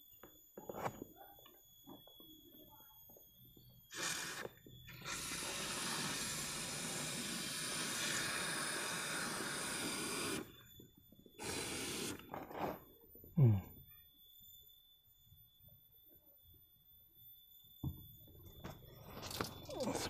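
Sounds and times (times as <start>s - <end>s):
aerosol can spraying hiss: 3.9s - 10.5s, 11.4s - 12.2s.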